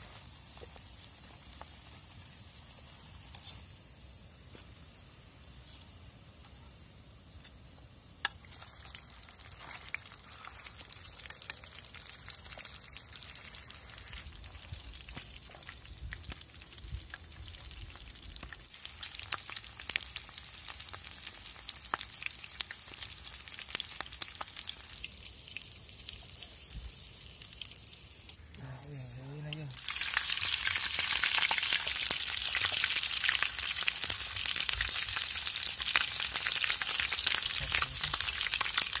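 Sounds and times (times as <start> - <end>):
chicken sizzling in hot oil: 0.0 - 39.0.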